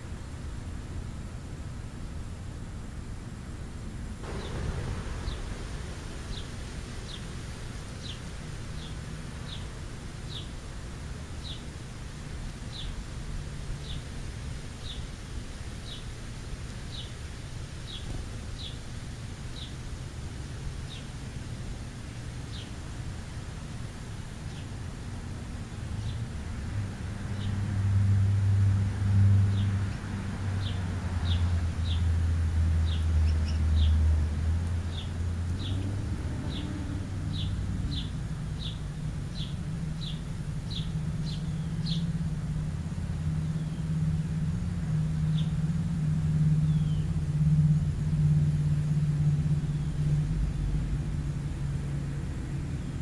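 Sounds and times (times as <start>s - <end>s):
vehicle engine drone: 3.8s - 19.4s, 20.1s - 53.0s
sparrow chirping: 6.3s - 7.3s, 8.0s - 8.2s, 8.8s - 9.7s, 10.3s - 10.5s, 11.4s - 11.7s, 12.7s - 13.0s, 29.5s - 32.1s, 32.8s - 34.0s, 34.8s - 35.9s, 36.5s - 42.3s, 43.4s - 43.9s, 45.2s - 45.6s, 46.6s - 47.2s.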